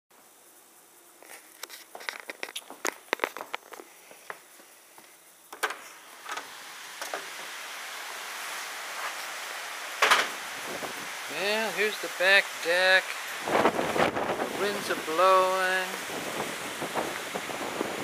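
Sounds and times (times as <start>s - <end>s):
blind slats rattling: 5.6s - 11.2s
wind rushing: 6.5s - 18.0s
door opening clack: 10.0s - 10.4s.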